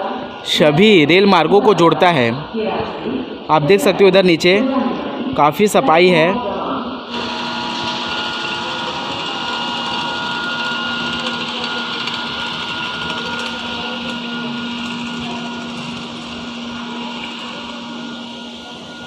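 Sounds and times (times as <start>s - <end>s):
floor scrubber motor whine: 7.1s - 19.0s.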